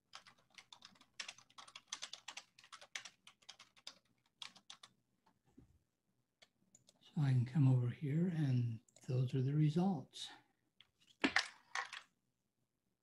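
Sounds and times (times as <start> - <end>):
faint keyboard typing: 0.0 - 5.4, 6.4 - 7.0.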